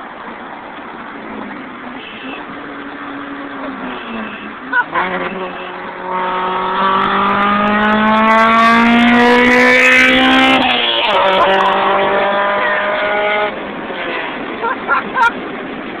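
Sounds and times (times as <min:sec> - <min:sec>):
car engine accelerating hard: 0:02.5 - 0:15.9.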